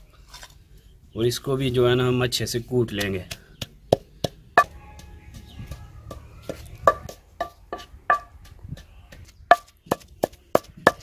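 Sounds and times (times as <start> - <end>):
pestle pounding in stone mortar: 2.8 - 11.0.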